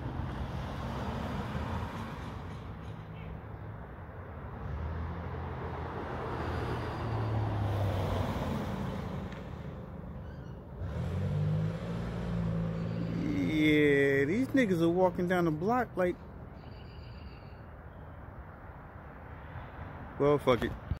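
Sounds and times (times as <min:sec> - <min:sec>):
cars passing: 0:00.0 - 0:20.9
low vehicle engine hum: 0:08.8 - 0:16.5.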